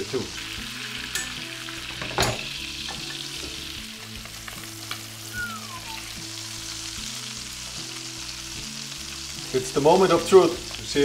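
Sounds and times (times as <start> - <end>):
butter sizzling in frying pan: 0.0 - 11.0
metal spoon clinking on pan: 1.0 - 1.4
short falling squeak: 5.3 - 6.1.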